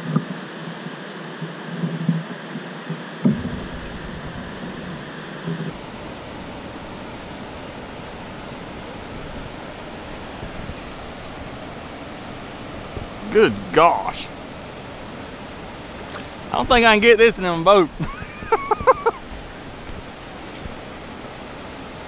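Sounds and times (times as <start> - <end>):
wind rumbling on microphone: 1.4 - 17.0, 17.8 - 22.0
knocks and thumps: 2.9 - 5.7
water rushing through spillway: 3.1 - 22.0.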